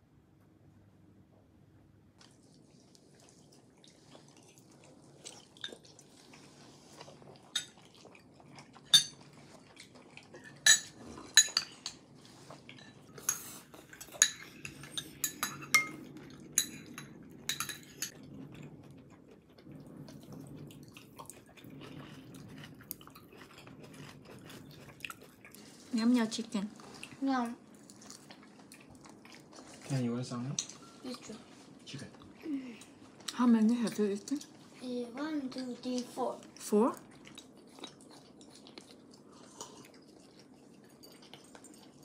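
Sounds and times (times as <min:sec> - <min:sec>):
chopsticks clinking on ceramic bowls: 0:08.9 - 0:09.2, 0:10.4 - 0:12.0, 0:12.8 - 0:16.0, 0:16.6 - 0:18.1.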